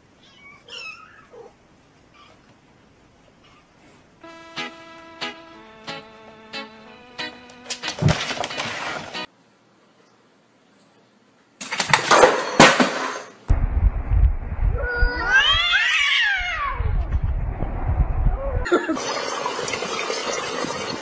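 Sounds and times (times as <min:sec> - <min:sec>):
low rumble: 0:13.5 - 0:18.7
cats caterwauling: 0:14.8 - 0:16.9.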